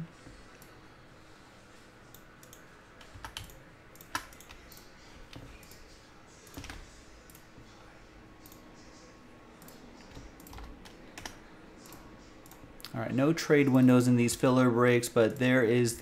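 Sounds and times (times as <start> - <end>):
computer mouse clicks: 2.1 - 5.9, 6.5 - 7.5, 8.4 - 8.7, 9.6 - 12.9.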